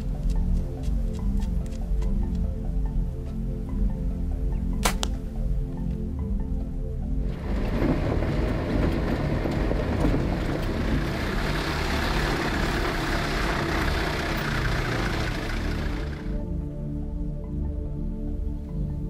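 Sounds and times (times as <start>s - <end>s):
vehicle engine running: 7.2s - 16.5s
tyres on gravel: 7.3s - 16.4s.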